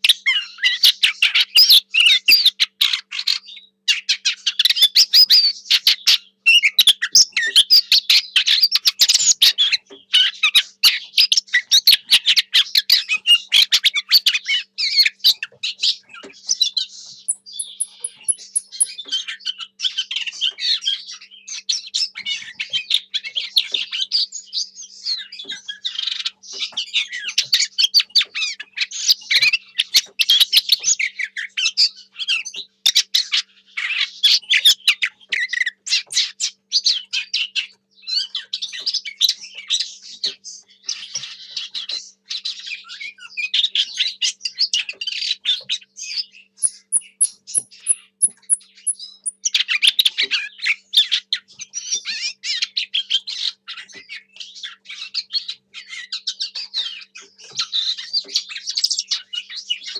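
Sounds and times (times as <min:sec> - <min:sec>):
bird singing warbling notes: 0:06.0 - 0:21.6, 0:45.8 - 0:51.0.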